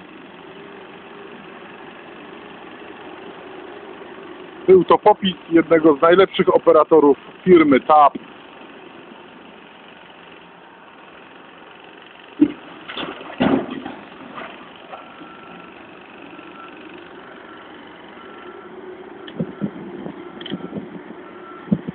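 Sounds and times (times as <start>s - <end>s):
diesel engine running: 0.0s - 21.9s
dirt thudding into truck: 12.4s - 15.6s
reversing alarm beeps: 19.4s - 21.9s.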